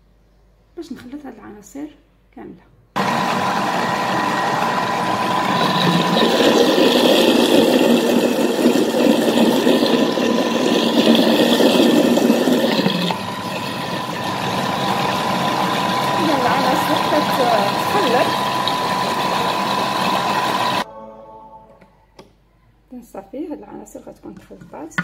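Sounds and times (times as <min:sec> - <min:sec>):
batter churning and sloshing: 0:03.0 - 0:20.8
food processor motor whine: 0:03.0 - 0:20.9.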